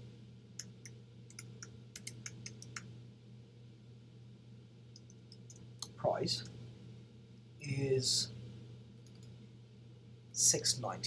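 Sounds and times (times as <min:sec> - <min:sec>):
steady low hum: 0:00.0 - 0:11.0
typing on computer keyboard: 0:01.3 - 0:02.9.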